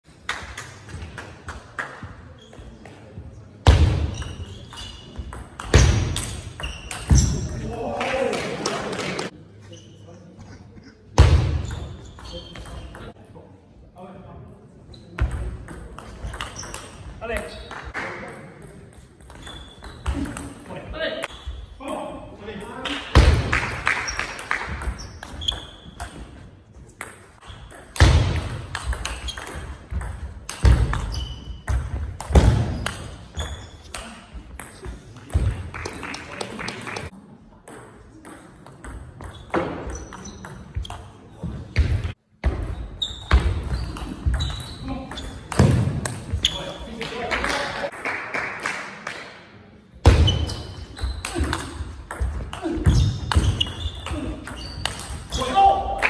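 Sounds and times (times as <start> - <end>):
shoe squeaks: 2.4 - 2.8, 4.1 - 7.6, 9.6 - 10.3, 11.6 - 13.1, 16.3 - 17.0, 19.3 - 20.3, 21.3 - 21.8, 25.0 - 26.4, 29.0 - 29.7, 30.8 - 31.8, 32.7 - 33.9, 39.2 - 41.5, 42.7 - 45.6, 46.3 - 47.0, 50.2 - 51.5, 52.8 - 55.7.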